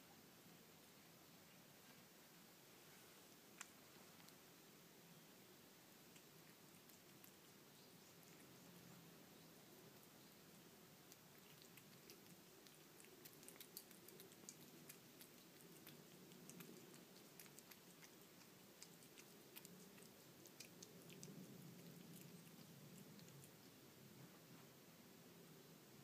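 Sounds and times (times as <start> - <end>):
cat licking and chewing food: 1.2 - 24.8.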